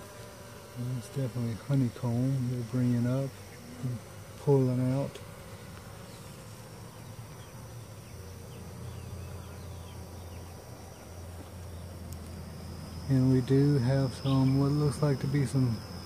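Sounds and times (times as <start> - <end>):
honeybee colony buzzing: 0.0 - 16.0.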